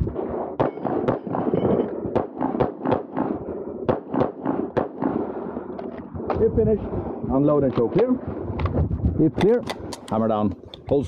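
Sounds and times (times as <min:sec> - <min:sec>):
handgun shots: 0:00.6 - 0:03.3, 0:03.9 - 0:05.2.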